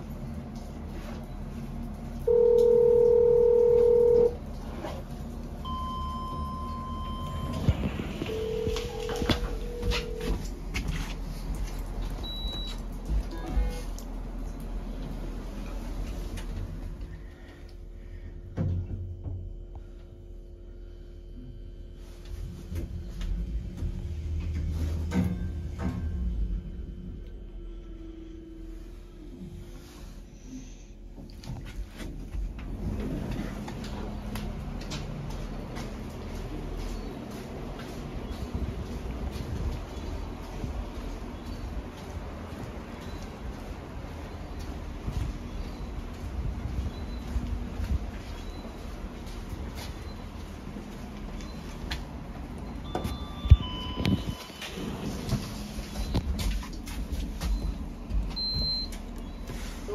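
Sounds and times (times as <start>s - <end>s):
steady hum: 0.0s - 59.9s
lift car rumbling: 0.8s - 17.1s, 22.4s - 30.2s, 32.2s - 56.4s
loud low electronic beep: 5.6s - 10.4s, 52.6s - 55.0s
fainter higher beep: 5.7s - 7.7s, 8.3s - 10.3s.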